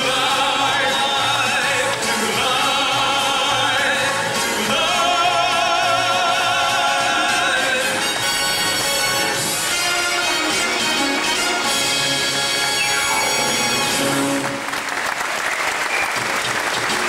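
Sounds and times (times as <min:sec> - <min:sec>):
voices singing long notes: 0:00.0 - 0:10.1
orchestral backing: 0:00.0 - 0:15.2.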